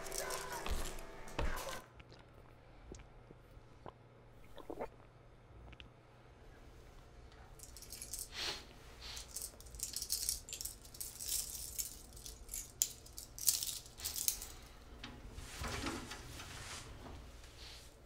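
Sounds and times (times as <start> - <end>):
small metal objects clinking: 0.0 - 1.0, 7.6 - 8.3, 9.1 - 14.7.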